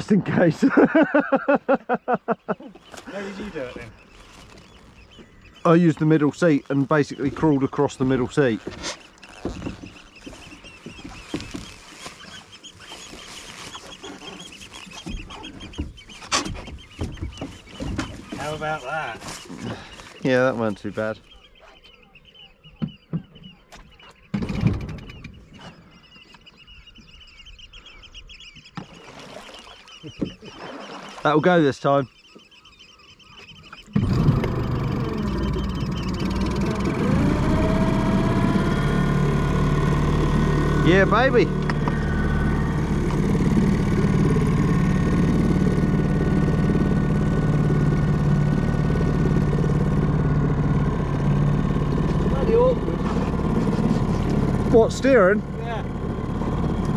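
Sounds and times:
high bird chirping: 0:01.9 - 0:39.5
boat engine running steadily: 0:02.8 - 0:21.6, 0:33.3 - 0:56.9
outboard motor pull-start: 0:02.8 - 0:25.9, 0:33.6 - 0:56.9.

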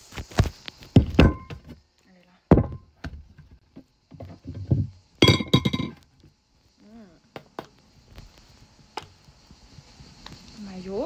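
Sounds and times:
objects knocking on a table: 0:02.5 - 0:06.0.

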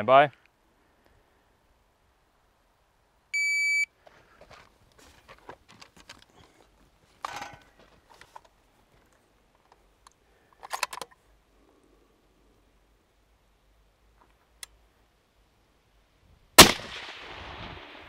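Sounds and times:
shot timer beep: 0:03.4 - 0:03.9
gear clattering and rustling: 0:04.4 - 0:09.8.

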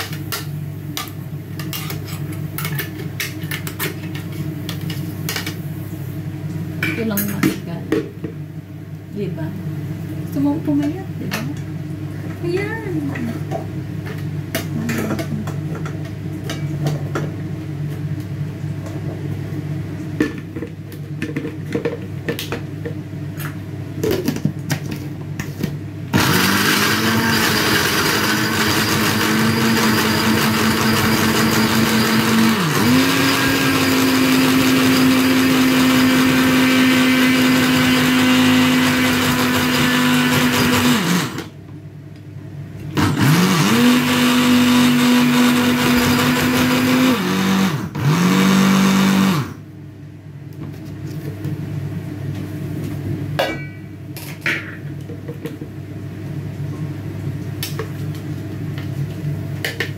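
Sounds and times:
blender running: 0:26.1 - 0:41.5, 0:43.0 - 0:49.6.

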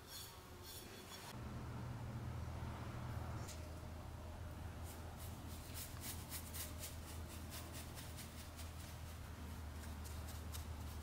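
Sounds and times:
steady low hum: 0:00.4 - 0:11.0
paintbrush swishing on metal: 0:04.8 - 0:11.0.

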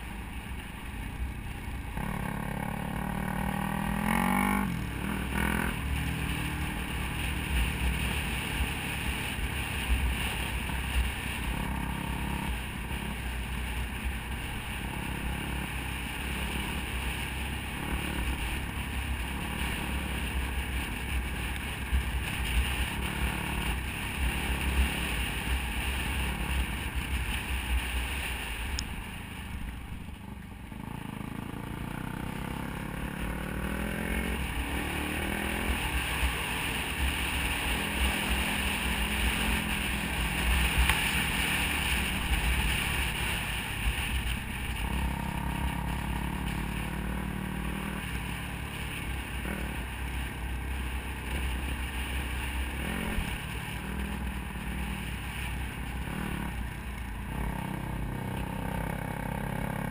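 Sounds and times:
dirt bike engine revving: 0:02.0 - 0:09.1, 0:30.8 - 0:44.1, 0:52.7 - 0:54.8.

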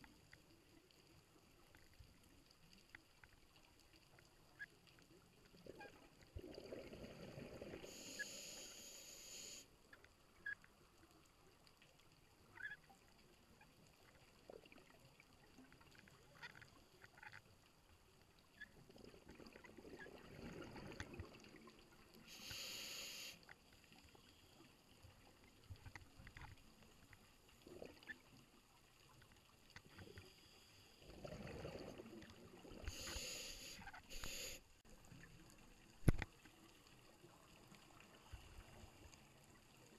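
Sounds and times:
diver breathing through regulator: 0:07.8 - 0:09.7, 0:22.3 - 0:23.4, 0:32.8 - 0:34.6
faint clicks: 0:35.2 - 0:36.9.

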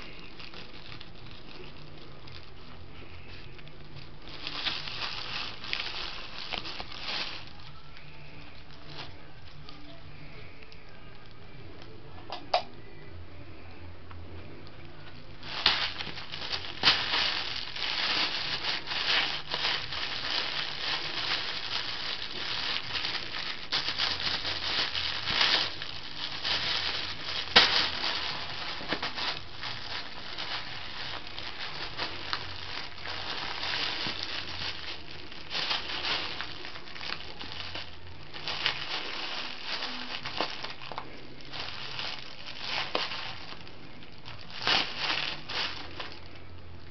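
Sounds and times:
plastic bag crinkling: 0:00.0 - 0:11.4, 0:14.9 - 0:46.9.

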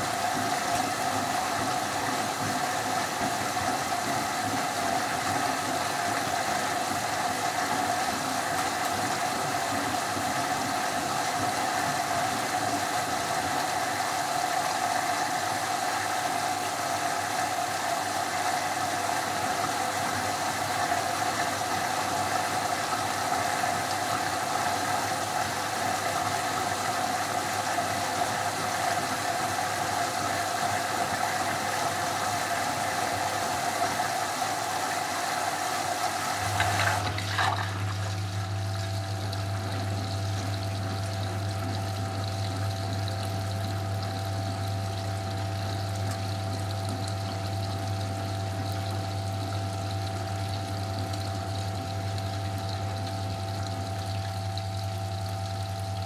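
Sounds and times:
washing machine motor humming: 0:00.0 - 0:56.0
water and foam sloshing: 0:33.6 - 0:40.4.

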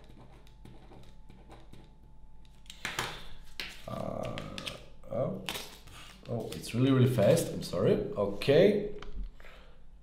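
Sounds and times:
pen scratching on paper: 0:00.0 - 0:01.9.

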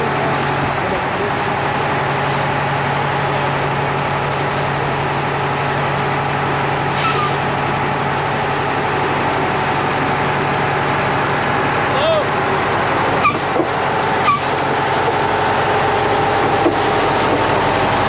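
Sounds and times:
truck diesel engine running: 0:00.0 - 0:18.0
air brake hisses: 0:06.9 - 0:07.5, 0:14.2 - 0:14.6.

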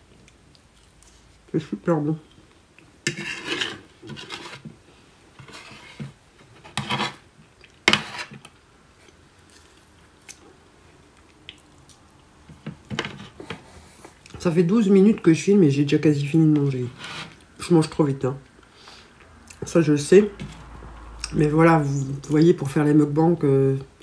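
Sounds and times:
fork scraping on a plate: 0:03.0 - 0:04.7, 0:05.4 - 0:07.2, 0:07.9 - 0:08.5.

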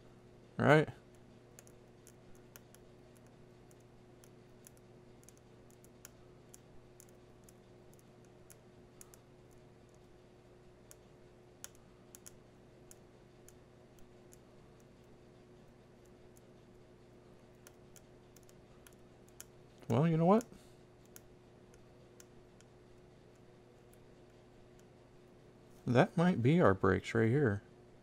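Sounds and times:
steady low hum: 0:00.0 - 0:28.0
faint small clicks: 0:01.1 - 0:10.1, 0:10.8 - 0:16.6, 0:17.6 - 0:22.7.

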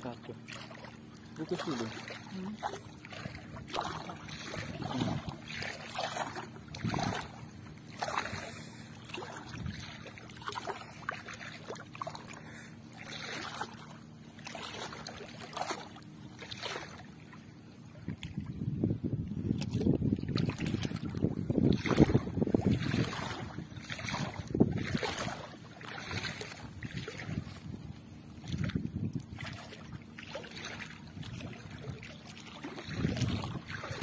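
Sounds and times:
net splashing and dripping: 0:00.4 - 0:17.3, 0:19.6 - 0:27.6, 0:28.4 - 0:34.0.

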